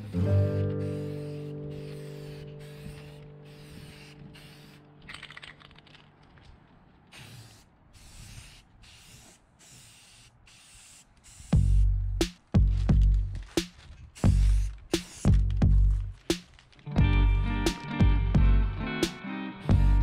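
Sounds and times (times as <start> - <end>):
spray paint hissing: 0.0 - 5.4, 7.1 - 16.5, 19.6 - 20.0.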